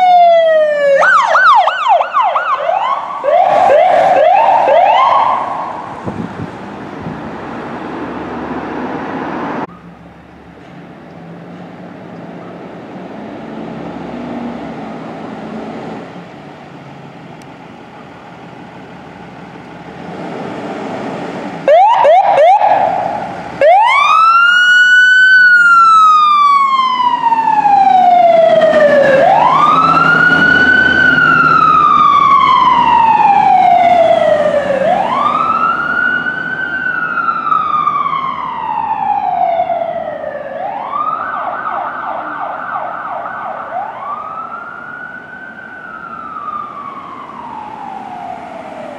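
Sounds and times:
ambulance siren wailing: 0.0 - 7.2, 21.6 - 48.9
street traffic noise: 0.0 - 48.9.

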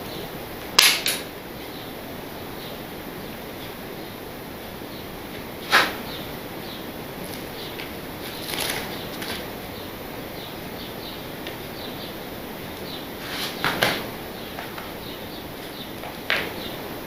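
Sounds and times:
steady background hiss: 0.0 - 17.0
crumpled paper rustling: 8.2 - 9.5.

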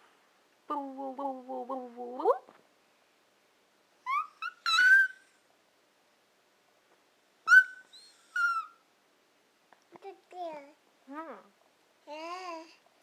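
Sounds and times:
baby squealing: 4.1 - 5.2, 7.5 - 8.8.

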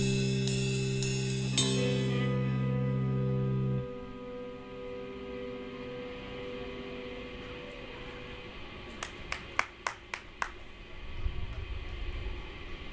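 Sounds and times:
electric guitar note ringing: 0.0 - 9.0
hand claps: 8.9 - 10.7.

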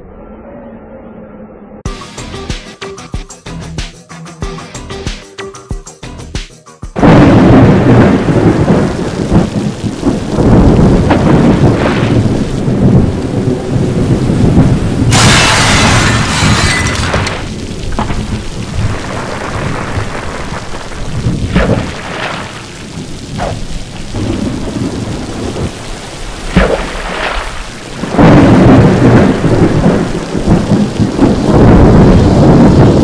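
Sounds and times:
heavy rain: 7.0 - 33.0
rolling thunder: 7.0 - 33.0
rushing crash: 15.1 - 20.3.

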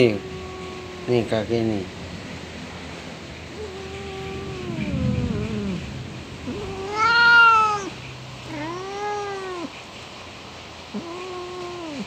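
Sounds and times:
cat meowing: 0.0 - 1.9, 3.5 - 9.8, 10.9 - 12.0.

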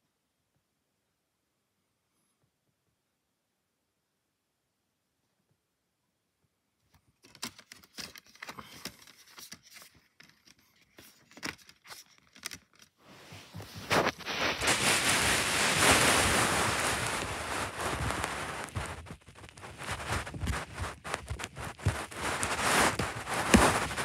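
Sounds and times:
rustling and rubbing: 7.2 - 24.0.

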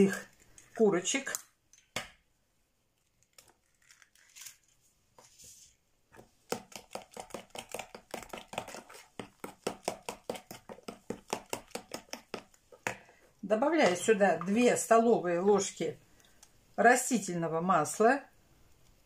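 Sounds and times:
fork beating in plastic bowl: 6.2 - 13.1.

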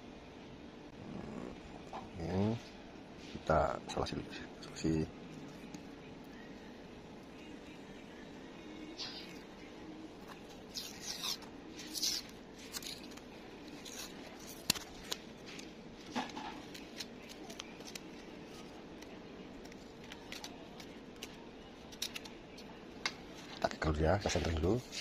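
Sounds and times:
masking tape pulled from roll: 10.7 - 14.8.

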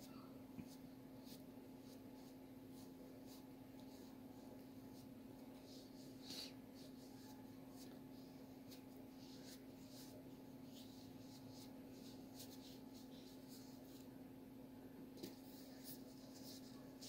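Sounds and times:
steady low hum: 0.0 - 17.0
cotton pad rubbing on skin: 8.6 - 14.0.

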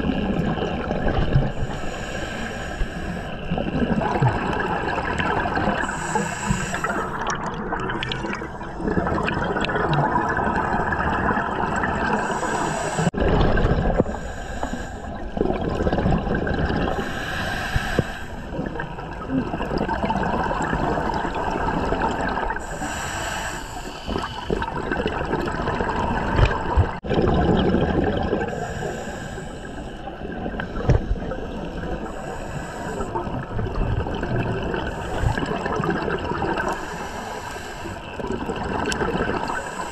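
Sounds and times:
underwater regulator breathing: 1.5 - 3.6, 5.6 - 7.4, 11.9 - 13.2, 13.9 - 15.4, 16.9 - 18.8, 22.5 - 24.7, 28.4 - 33.5, 34.7 - 38.2, 38.8 - 39.9
exhaust bubbles bursting: 7.1 - 12.2, 15.2 - 17.0, 24.2 - 28.6.

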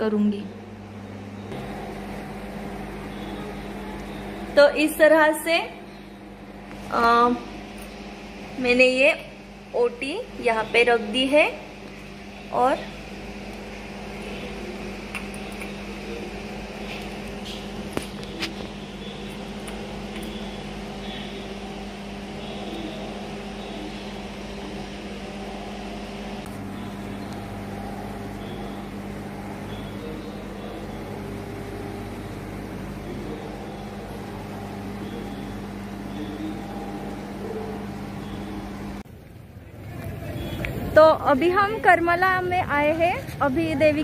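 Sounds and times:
car engine hum: 25.3 - 41.0
road noise: 26.4 - 44.0.

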